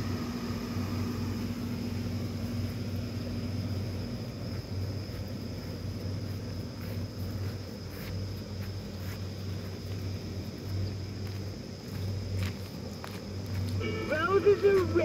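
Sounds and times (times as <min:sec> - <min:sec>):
electric blower fans humming: 0:00.0 - 0:15.0
high-pitched tone: 0:13.8 - 0:15.0.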